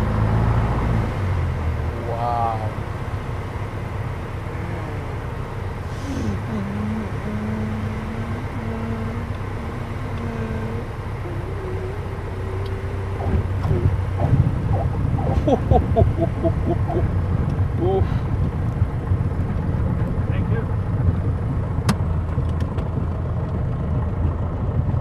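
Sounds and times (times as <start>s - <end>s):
aircraft engine and propeller drone: 1.0s - 25.0s
voices: 1.9s - 2.9s, 4.3s - 17.1s, 17.8s - 18.3s
steady tone shifting pitch: 4.3s - 17.9s.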